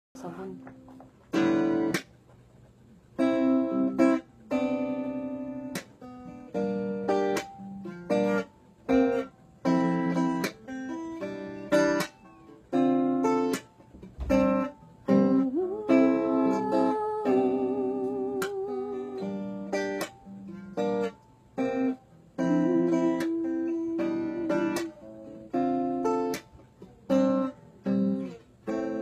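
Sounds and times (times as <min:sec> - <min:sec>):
guitar strumming chords: 0:00.2 - 0:02.2, 0:03.1 - 0:29.0
person singing wavering note: 0:15.3 - 0:19.5, 0:22.4 - 0:25.2.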